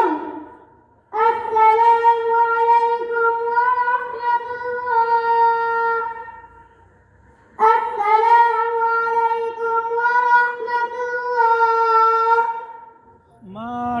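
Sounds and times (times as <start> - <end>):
boy chanting a high note: 0.0 - 0.5, 1.1 - 6.4, 7.6 - 12.9.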